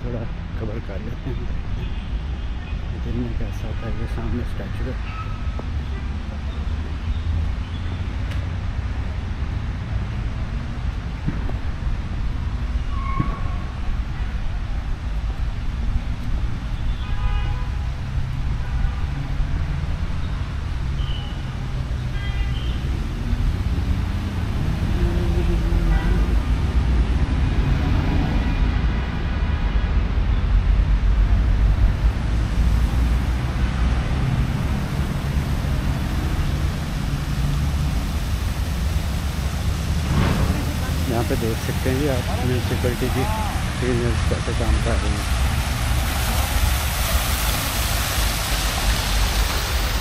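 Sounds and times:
street traffic rumble: 0.0s - 50.0s
low outdoor rumble: 34.4s - 43.8s.

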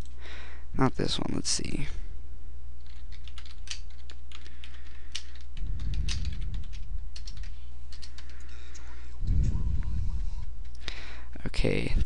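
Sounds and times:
steady low hum: 0.0s - 12.0s
computer keyboard typing: 2.8s - 8.9s
low rumble: 9.0s - 10.6s.

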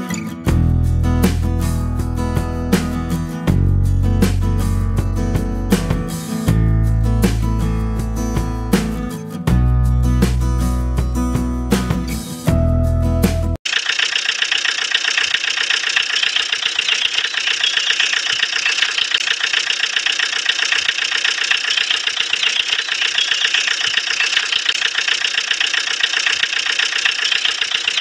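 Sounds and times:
motor running with rattle: 13.6s - 28.0s.

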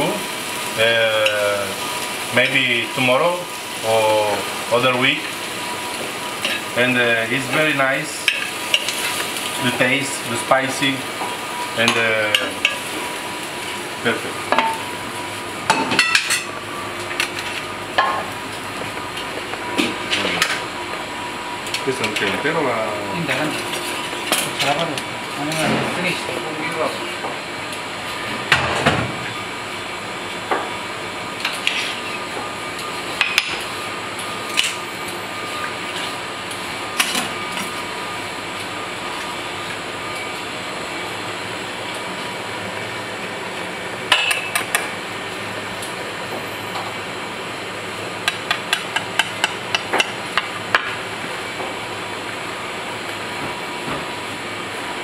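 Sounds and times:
steady background hum: 0.0s - 55.0s.

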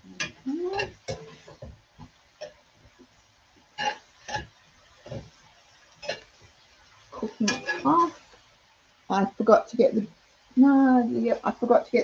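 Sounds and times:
faint sizzle: 0.0s - 12.0s
wooden spoon scraping frying pan: 0.2s - 1.7s, 3.8s - 8.4s.

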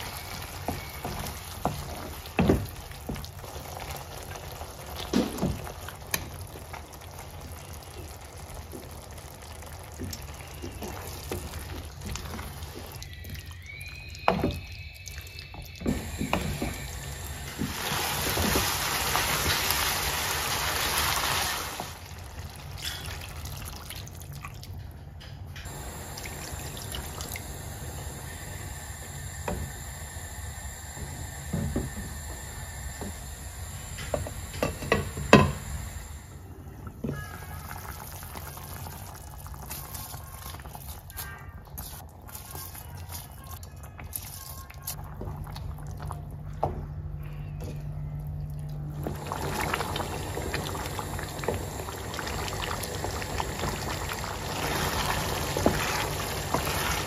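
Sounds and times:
water pouring into pan: 0.0s - 24.7s, 25.7s - 35.9s, 37.2s - 41.2s, 49.0s - 57.0s.

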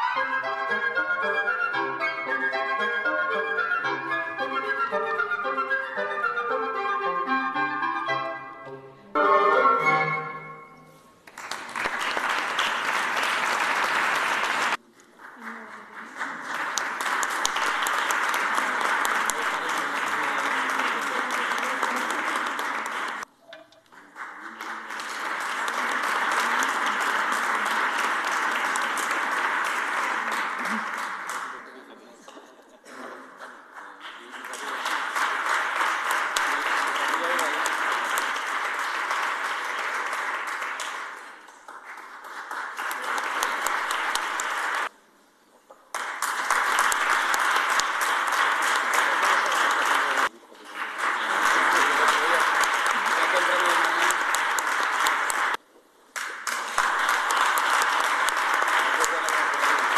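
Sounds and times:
audience applauding: 11.2s - 32.2s, 32.9s - 45.0s, 45.9s - 59.9s.

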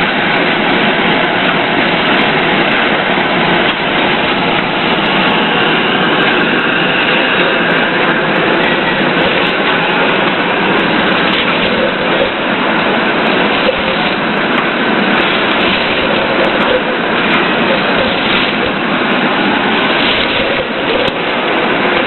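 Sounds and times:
industrial machinery running: 0.0s - 22.0s.

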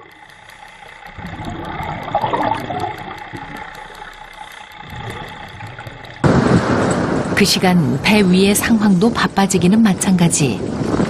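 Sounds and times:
exhaled air bubbling underwater: 0.0s - 7.2s
steady hum: 0.0s - 10.7s.

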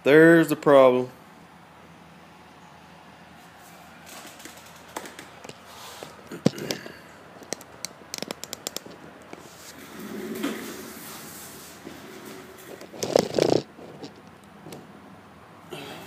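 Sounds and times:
phone handling clicks and taps: 7.4s - 9.0s.

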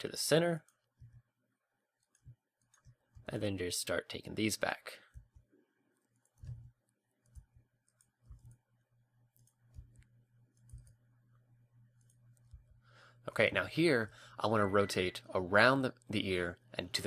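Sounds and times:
low steady hum: 0.0s - 17.0s
mouse and keyboard clicks: 6.2s - 8.6s, 9.3s - 11.0s.

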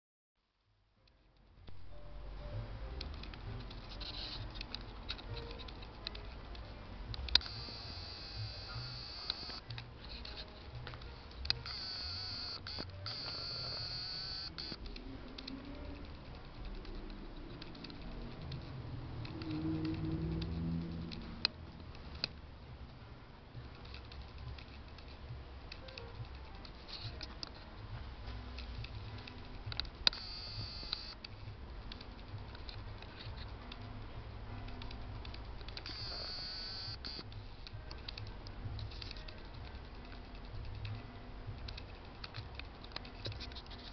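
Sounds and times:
faint indistinct pitched sounds: 1.7s - 22.4s, 23.0s - 43.9s
camera handling clicks and rubbing: 41.6s - 43.9s.

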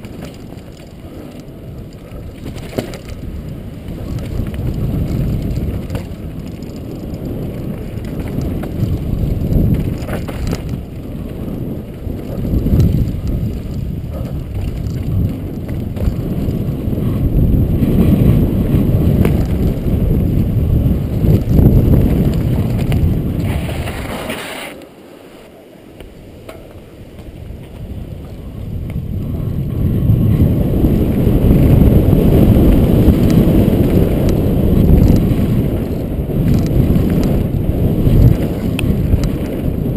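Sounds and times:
bike tyres rolling over gravel: 0.0s - 39.9s
wind rushing over microphone: 0.0s - 39.9s.

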